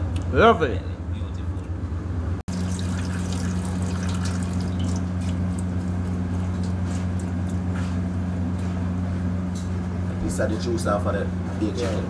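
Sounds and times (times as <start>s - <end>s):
low kitchen hum: 0.0s - 12.0s
liquid trickling into metal pan: 2.5s - 7.4s.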